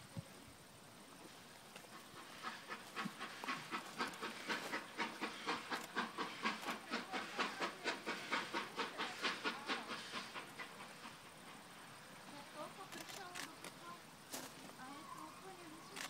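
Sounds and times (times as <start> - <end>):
steam locomotive chuffing: 1.9 - 14.0.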